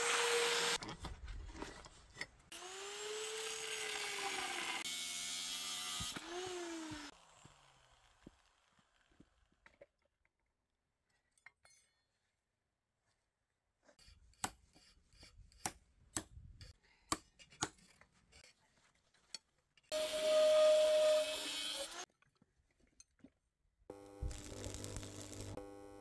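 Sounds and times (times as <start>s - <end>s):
power tool whining: 0.0s - 0.8s, 2.5s - 8.4s, 19.9s - 22.0s, 23.9s - 26.0s.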